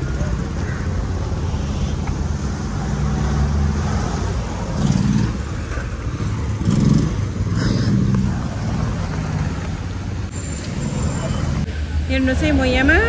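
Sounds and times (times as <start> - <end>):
motorcycle passing: 2.5 - 10.2.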